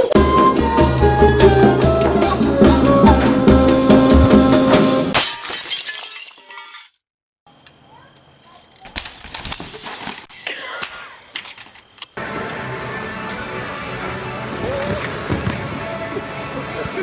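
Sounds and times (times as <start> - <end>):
band music: 0.0 - 5.1.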